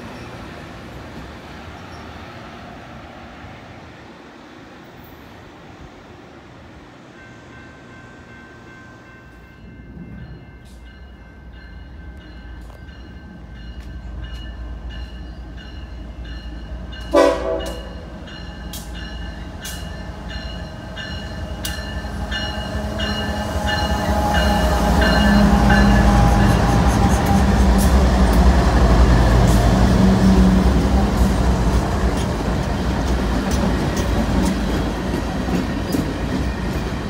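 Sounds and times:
train bell ringing: 7.1s - 28.4s
train horn blast: 17.0s - 18.1s.

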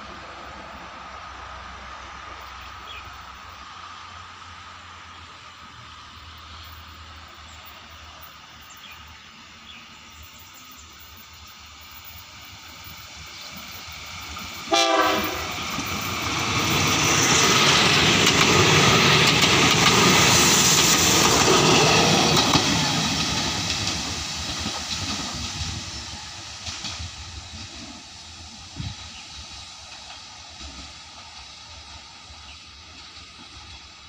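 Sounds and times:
train wheels rumbling on rails: 0.0s - 34.0s
locomotive air horn blast: 14.7s - 15.6s.

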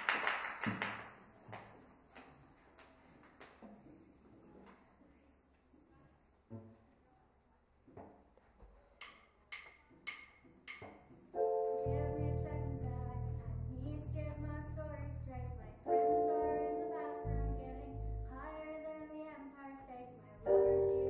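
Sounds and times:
held keyboard chords: 11.4s - 18.6s, 20.5s - 21.0s.

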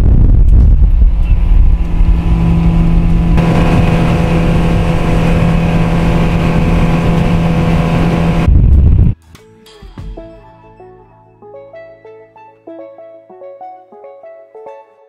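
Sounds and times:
wind on microphone: 0.0s - 9.2s
outboard motor running: 0.8s - 8.5s.

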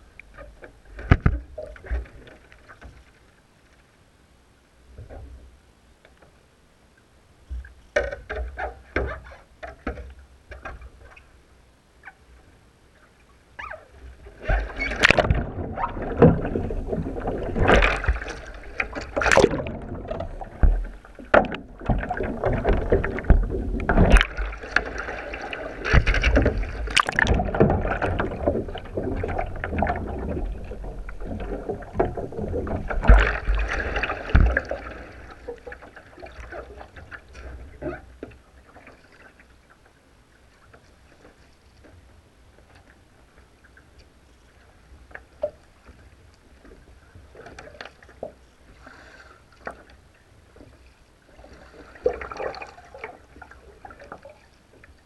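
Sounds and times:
water lapping: 13.0s - 42.0s, 42.6s - 55.0s
water splashing: 13.6s - 38.0s, 50.6s - 55.0s.

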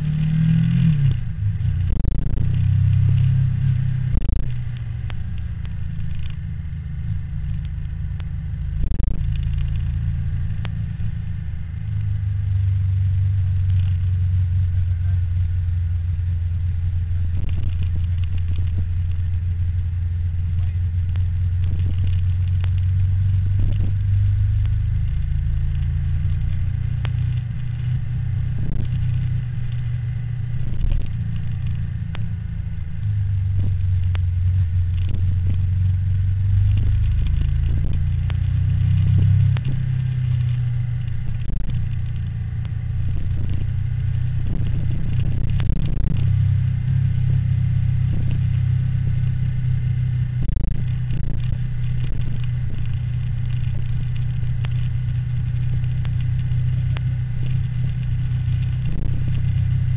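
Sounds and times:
motorbike engine running: 0.0s - 59.9s
road and wind rumble: 0.0s - 59.9s.

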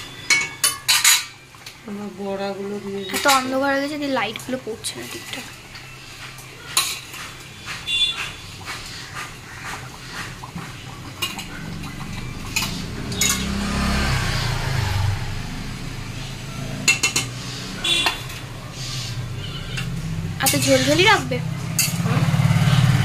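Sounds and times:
metal utensils scraping a pan: 0.2s - 1.4s, 3.0s - 3.6s, 4.9s - 14.0s, 16.8s - 22.8s.

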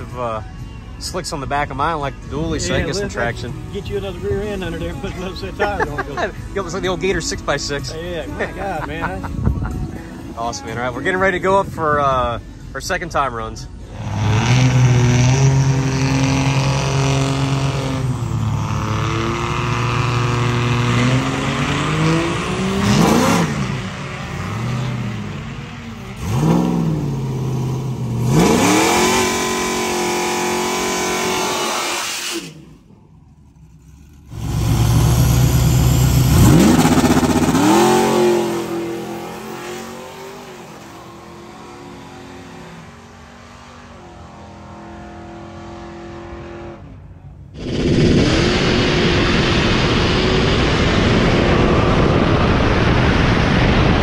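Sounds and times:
diesel truck running: 0.0s - 54.0s
car engine revving: 13.1s - 54.0s.

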